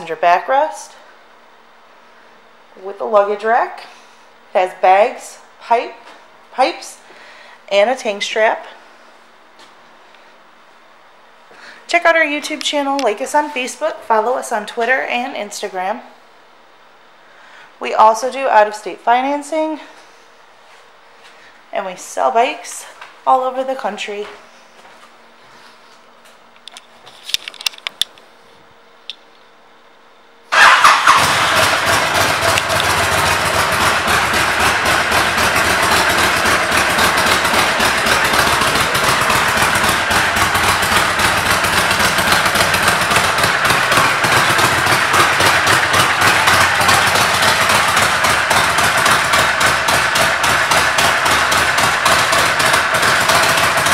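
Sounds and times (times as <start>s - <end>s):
motorcycle engine starting and idling: 30.5s - 53.9s.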